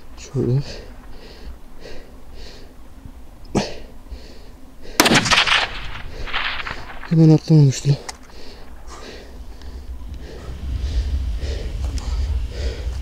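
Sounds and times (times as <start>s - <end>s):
gunshots: 5.0s - 7.4s.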